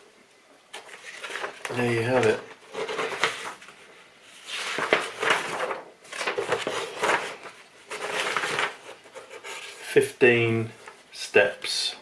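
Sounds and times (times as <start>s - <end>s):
paper booklet rustling: 0.7s - 10.0s, 10.6s - 11.2s.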